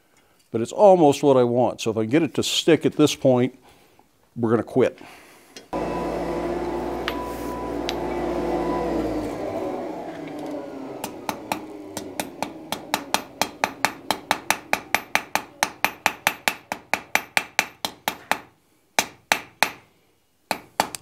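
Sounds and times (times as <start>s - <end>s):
hammer striking iron on anvil: 11.0s - 19.8s.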